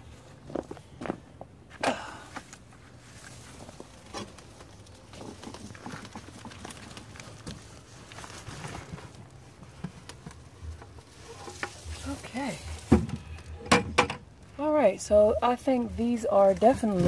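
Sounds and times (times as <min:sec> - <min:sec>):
soil pattering and knocking plastic: 0:03.2 - 0:14.3.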